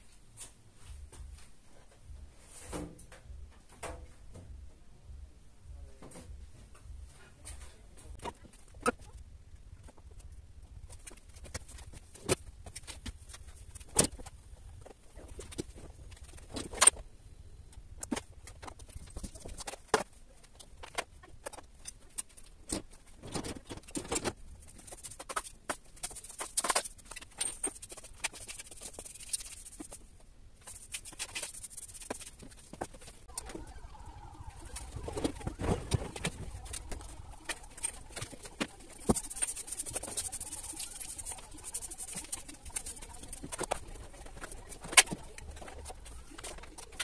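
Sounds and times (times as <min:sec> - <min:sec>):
broom sweeping floor: 0:30.6 - 0:46.9.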